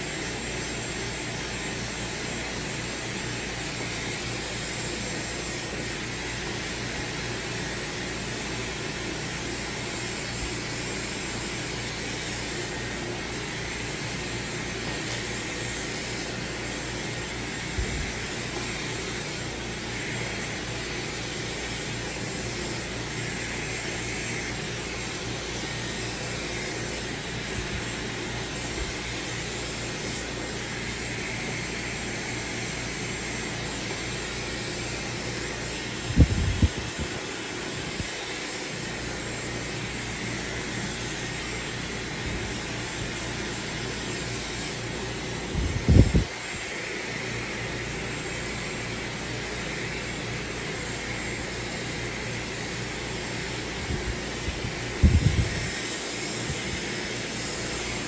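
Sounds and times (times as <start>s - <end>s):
hair dryer blowing: 0.0s - 58.0s.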